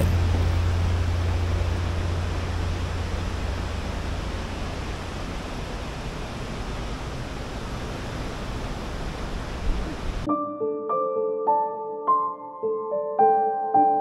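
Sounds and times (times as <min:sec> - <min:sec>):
low thump: 0:00.0 - 0:00.8
deep rumble: 0:00.0 - 0:10.3
steady rushing noise: 0:00.0 - 0:10.3.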